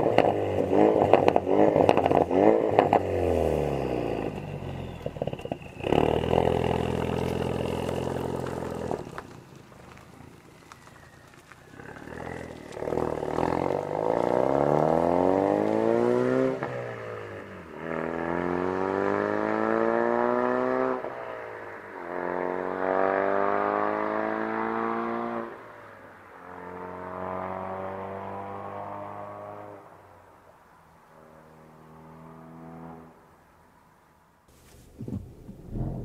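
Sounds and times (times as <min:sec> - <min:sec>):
car engine accelerating hard: 0:00.0 - 0:09.3, 0:11.4 - 0:21.1, 0:34.6 - 0:36.0.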